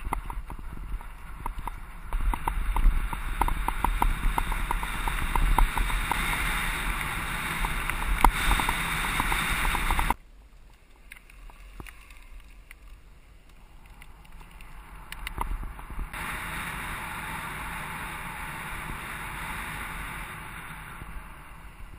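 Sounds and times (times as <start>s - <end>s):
bike rattling on bumpy track: 0.0s - 10.2s, 13.9s - 21.9s
rapid ticking: 0.0s - 10.2s
wind rush on camera: 0.0s - 10.2s, 11.6s - 21.9s.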